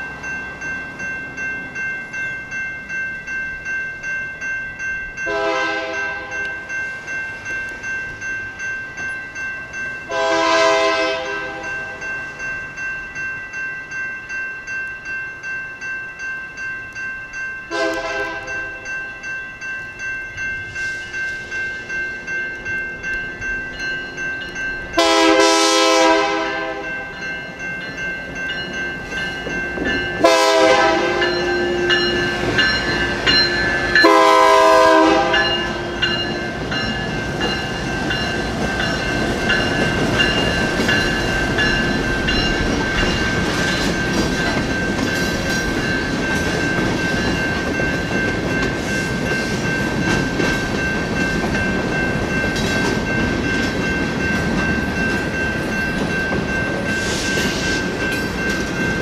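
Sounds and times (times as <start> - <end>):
crossing bells ringing: 0.0 - 59.0
freight train rumbling past: 0.0 - 59.0
wheels clacking on rails: 0.0 - 59.0
locomotive air horn blasts: 5.3 - 6.3, 10.1 - 11.6, 17.7 - 18.6, 25.0 - 26.8, 30.2 - 31.8, 34.0 - 36.0.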